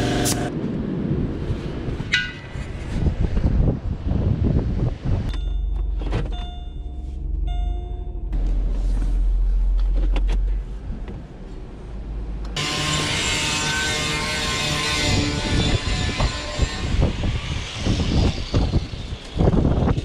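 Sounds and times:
low rumble: 0.0 - 12.6
car warning chime: 5.3 - 8.4.

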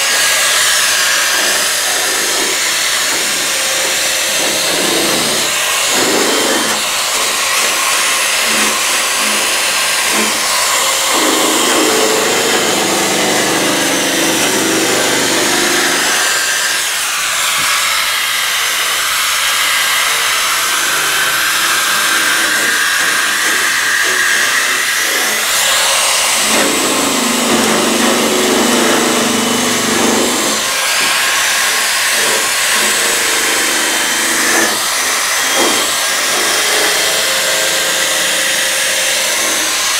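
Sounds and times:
rotary wire brush whining: 4.5 - 16.9, 21.2 - 37.2.

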